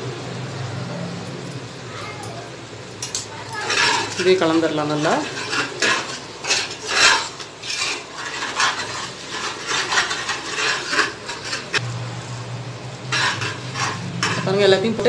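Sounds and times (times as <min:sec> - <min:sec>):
metal spoon scraping a pot: 0:03.0 - 0:11.8, 0:13.0 - 0:15.0.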